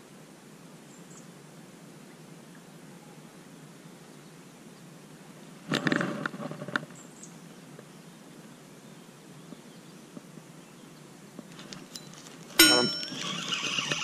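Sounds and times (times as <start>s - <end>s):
faint outdoor hiss: 0.0s - 14.0s
sharp click: 12.6s - 13.5s.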